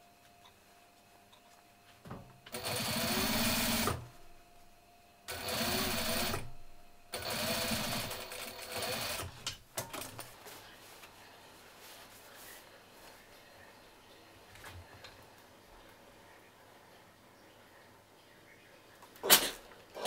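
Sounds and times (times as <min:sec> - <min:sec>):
sewing machine stitching: 0:02.5 - 0:04.1, 0:05.3 - 0:09.4.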